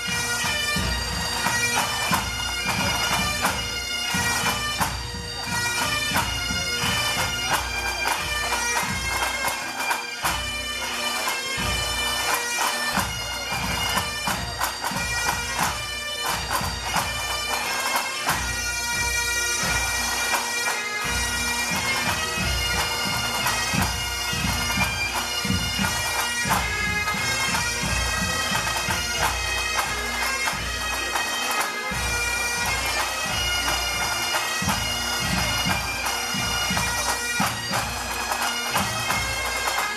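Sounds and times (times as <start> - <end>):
bagpipes playing a tune: 0.0 - 39.9
snare tenor and bass drums: 21.3 - 39.9.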